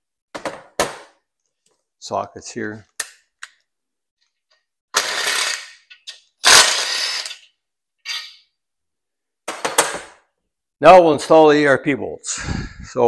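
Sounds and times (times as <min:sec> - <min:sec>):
cordless power tool spinning bolts: 0:05.0 - 0:07.5.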